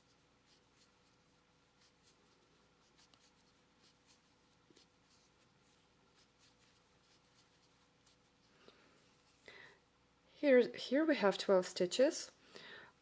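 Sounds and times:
yarn rustling on crochet hook: 0.0 - 9.5.

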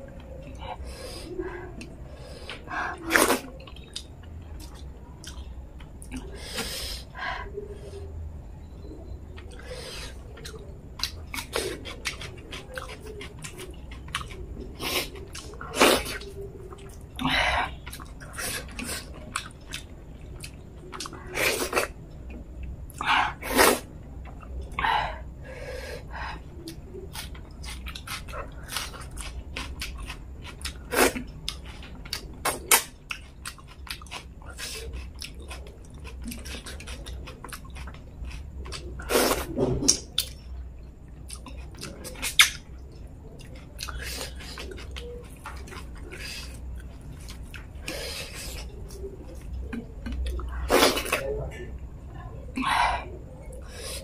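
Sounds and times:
wet chewing and lip smacks: 26.6 - 39.0, 41.0 - 51.2.

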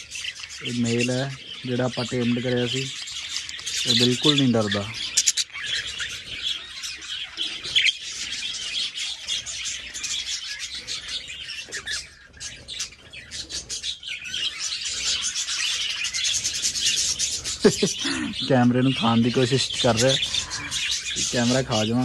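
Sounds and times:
budgerigars chattering: 0.0 - 22.0.

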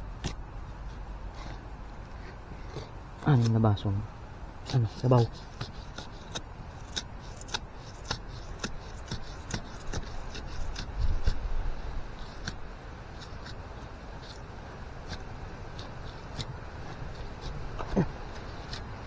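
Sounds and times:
machete chopping into soil and roots: 4.6 - 11.4, 12.2 - 13.6.

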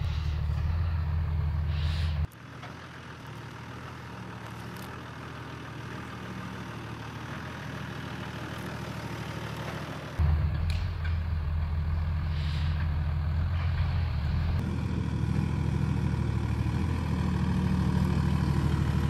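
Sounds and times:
diesel engine at low revs: 0.0 - 19.0.

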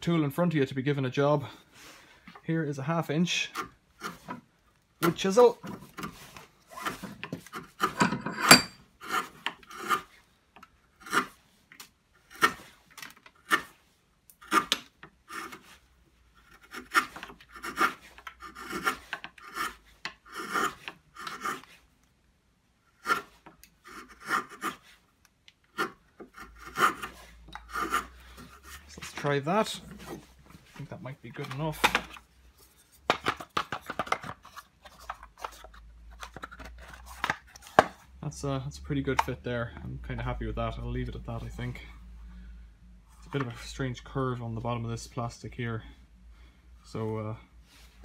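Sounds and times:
chisel scraping wood: 3.4 - 4.4, 5.0 - 10.2, 10.9 - 11.4, 12.2 - 13.8, 14.4 - 15.8, 16.4 - 21.9, 22.9 - 25.0, 25.7 - 38.0.

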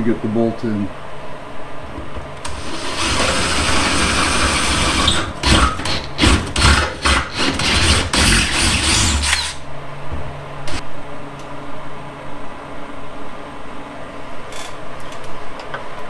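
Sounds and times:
cordless drill running: 2.5 - 9.6.

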